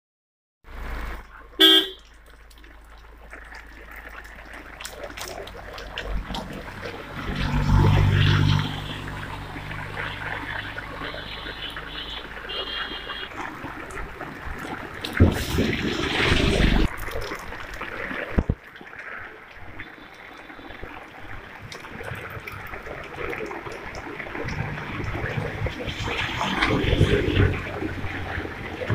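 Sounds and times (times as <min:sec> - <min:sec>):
rain on a paved street: 0:00.7 - 0:28.9
vehicle horn toot: 0:01.6 - 0:02.0, 0:10.6 - 0:13.4.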